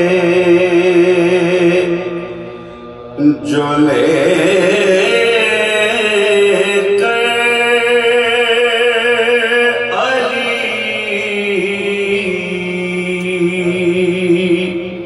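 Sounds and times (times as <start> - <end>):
men singing an elegy: 0.0 - 14.9.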